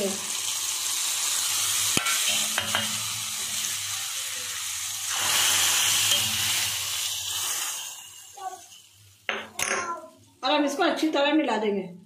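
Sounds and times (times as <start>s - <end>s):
spices sizzling in hot ghee: 0.0s - 11.6s.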